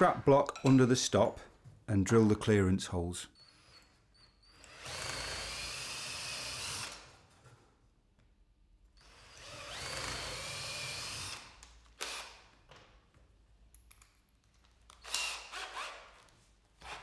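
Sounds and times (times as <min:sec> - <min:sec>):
cordless drill boring through wood: 0:03.4 - 0:07.2, 0:09.0 - 0:12.4, 0:15.0 - 0:16.1.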